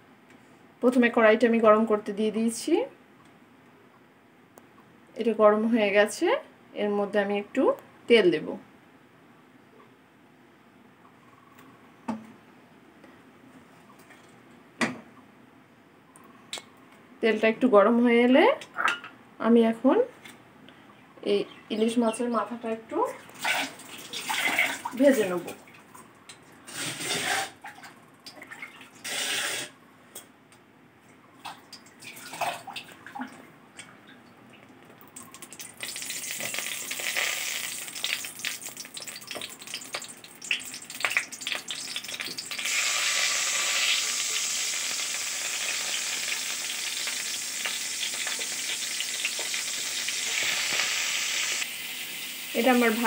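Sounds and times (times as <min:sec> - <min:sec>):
fish frying in hot oil: 0:35.2 - 0:53.0.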